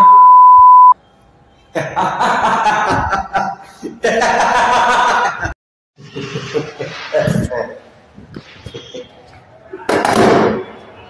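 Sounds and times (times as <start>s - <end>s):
censor bleep: 0.0s - 1.0s.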